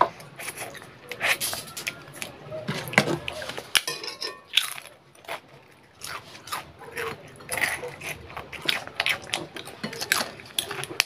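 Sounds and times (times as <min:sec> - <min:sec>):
crunchy food chewing: 0:00.0 - 0:11.0.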